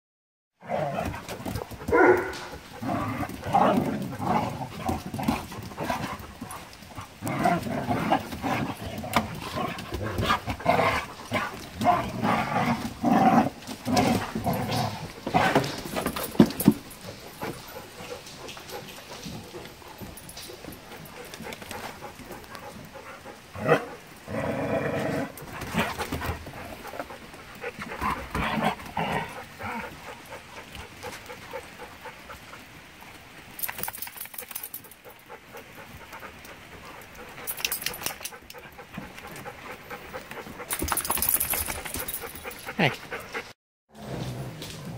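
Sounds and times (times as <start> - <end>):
dogs growling: 0.6 - 32.6, 34.6 - 44.9
dogs scuffling: 0.9 - 23.3, 25.0 - 31.4, 37.0 - 43.4.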